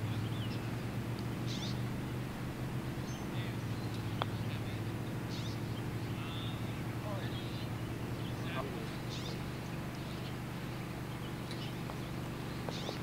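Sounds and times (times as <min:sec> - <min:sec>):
low machine hum: 0:00.0 - 0:13.0
putter striking golf ball: 0:03.8 - 0:04.7.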